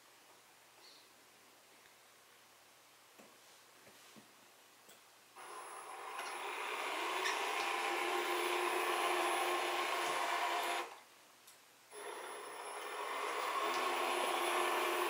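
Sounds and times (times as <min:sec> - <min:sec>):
electric motor whine: 0:05.4 - 0:11.0, 0:11.9 - 0:15.0.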